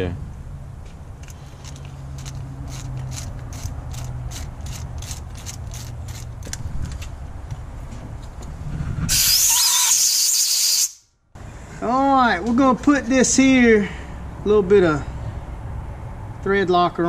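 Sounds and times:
ratcheting hand tool clicking: 1.2 - 7.0
compressed air hiss: 9.1 - 11.0.

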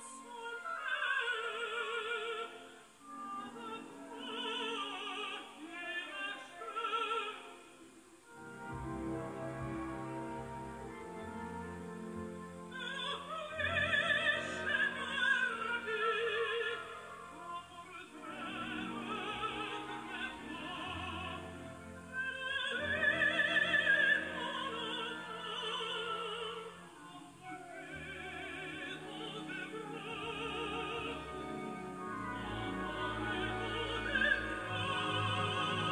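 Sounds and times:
operatic singer with vibrato: 0.0 - 8.6, 10.9 - 35.9
orchestral accompaniment: 7.8 - 35.9.

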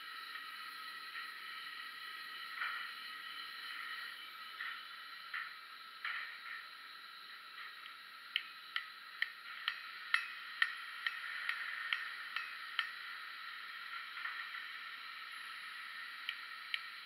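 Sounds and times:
steady hiss: 0.0 - 17.0
hammer tapping on anvil: 8.3 - 13.0.

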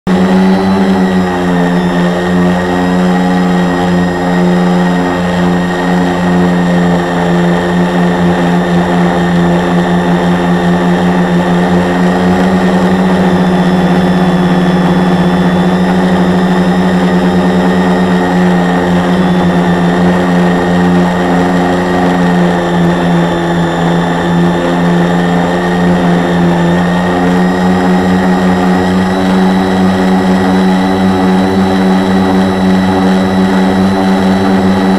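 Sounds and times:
quadcopter motors droning: 0.1 - 34.9.

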